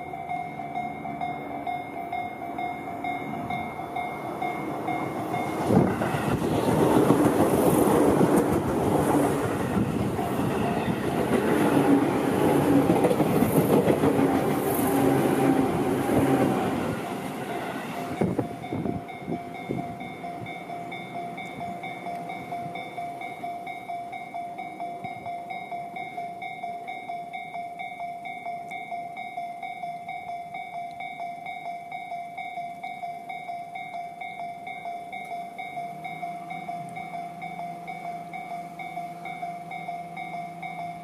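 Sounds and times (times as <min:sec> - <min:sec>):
level crossing bell ringing: 0:00.0 - 0:05.7, 0:17.2 - 0:41.0
train wheels clattering on rails: 0:02.2 - 0:23.9.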